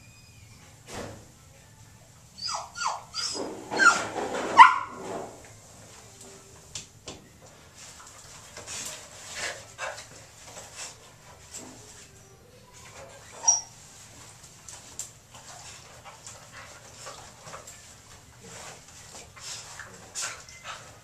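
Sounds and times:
puppy whining: 0:02.3 - 0:05.0, 0:12.1 - 0:13.8, 0:19.7 - 0:21.0
puppy yelping barks: 0:02.4 - 0:05.0.

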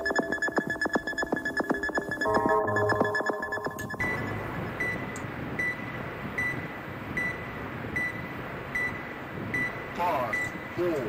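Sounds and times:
music: 0:00.0 - 0:04.3
short high electronic beep: 0:02.0 - 0:05.8.

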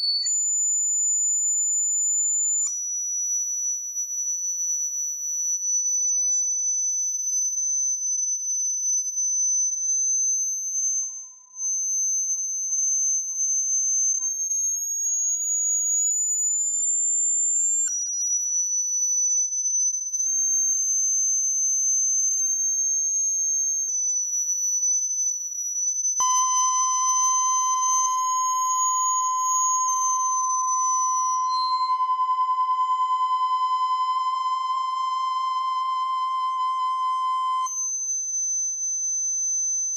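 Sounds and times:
high wavering electronic sine tone: 0:00.0 - 0:39.9
stack of higher steady tones: 0:26.2 - 0:31.8
low steady test tone hum: 0:26.2 - 0:37.2.

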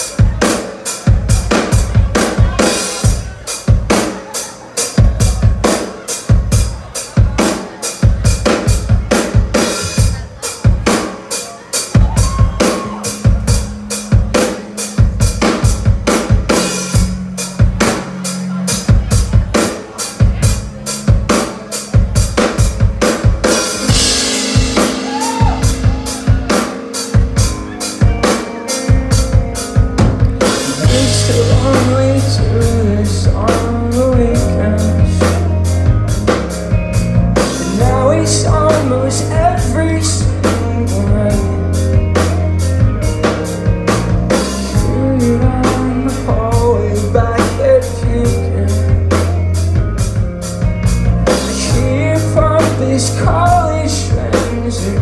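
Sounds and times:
bass guitar: 0:00.0 - 0:11.0, 0:11.9 - 0:55.0
drum kit beat: 0:00.0 - 0:55.0
electric guitars: 0:12.0 - 0:55.0.

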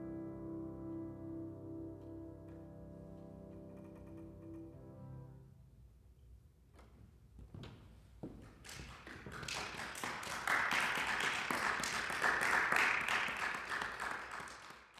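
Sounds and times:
audience applauding: 0:08.6 - 0:14.9.

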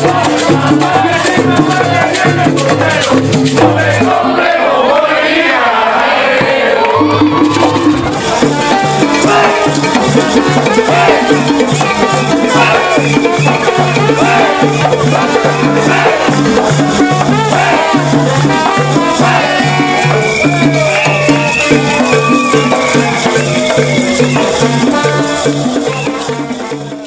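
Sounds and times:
maracas shaking: 0:00.0 - 0:04.4, 0:07.0 - 0:27.0
hand drums beating: 0:00.0 - 0:04.6, 0:06.4 - 0:27.0
people singing and shouting: 0:00.0 - 0:27.0
trombones playing: 0:06.8 - 0:27.0.

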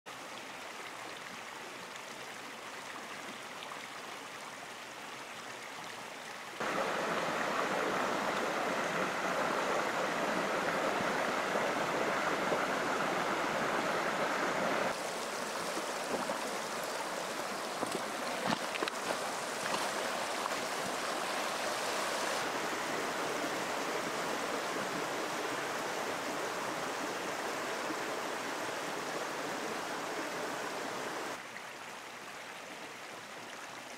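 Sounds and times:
stream running over rocks: 0:00.1 - 0:33.9.

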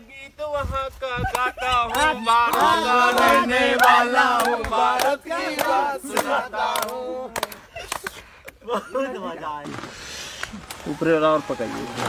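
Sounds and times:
men's voices overlapping: 0:10.8 - 0:12.0.

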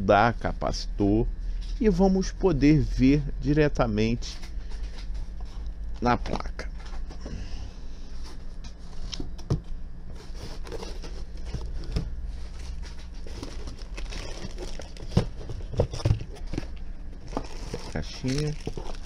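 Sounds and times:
cardboard rustling and scraping: 0:10.1 - 0:19.0.

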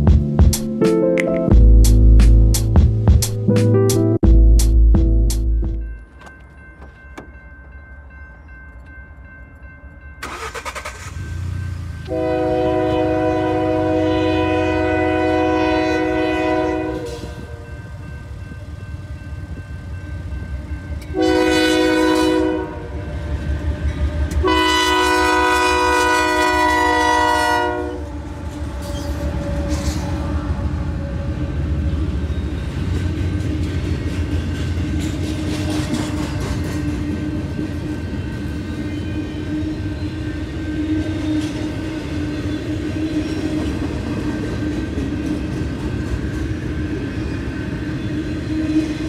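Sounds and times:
train rumbling: 0:00.0 - 0:00.8, 0:01.5 - 0:49.0
locomotive air horn blasts: 0:12.0 - 0:17.8, 0:21.1 - 0:23.1, 0:24.3 - 0:31.3.

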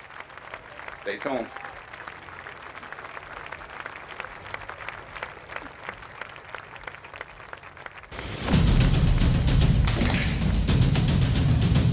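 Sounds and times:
quiet applause: 0:00.0 - 0:08.5.

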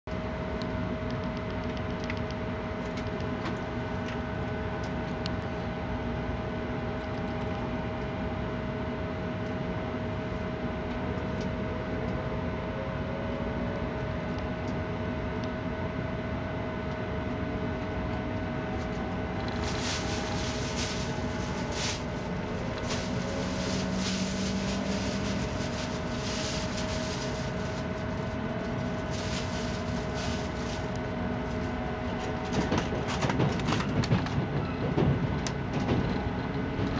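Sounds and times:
train rumble: 0:18.6 - 0:36.9
irregular hissing: 0:19.6 - 0:31.0.

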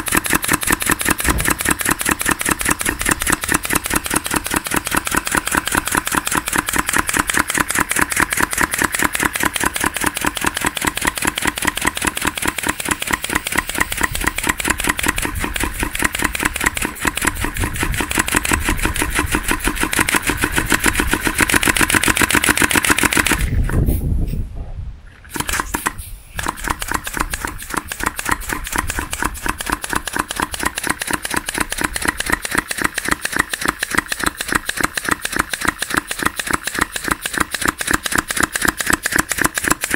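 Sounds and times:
compressed-air engine popping: 0:00.0 - 0:39.9.

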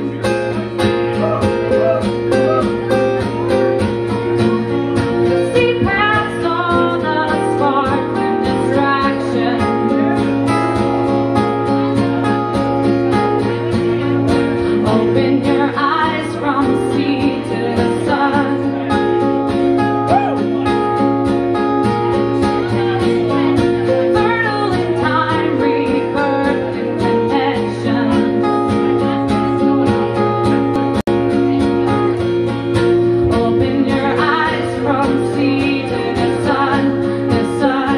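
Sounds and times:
acoustic guitar strumming: 0:00.0 - 0:37.9
second guitar playing: 0:00.0 - 0:37.9
woman singing: 0:05.3 - 0:10.4, 0:14.7 - 0:19.1, 0:22.6 - 0:30.2, 0:33.0 - 0:37.9.

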